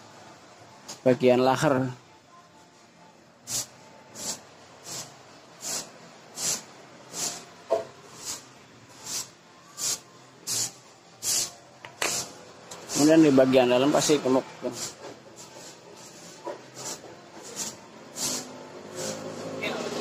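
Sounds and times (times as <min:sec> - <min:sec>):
short aerosol sprays: 0:03.5 - 0:07.4, 0:08.2 - 0:08.4, 0:09.0 - 0:13.3, 0:14.7 - 0:19.6.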